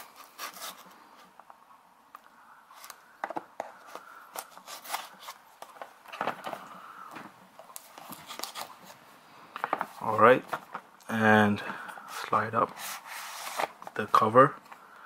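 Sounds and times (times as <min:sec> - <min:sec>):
knife slitting box tape: 0:00.0 - 0:00.8.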